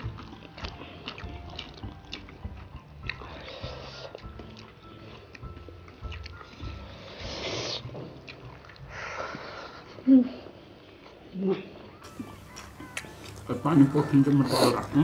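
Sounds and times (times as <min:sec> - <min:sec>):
chewing and smacking: 0:00.0 - 0:10.0, 0:10.8 - 0:15.0.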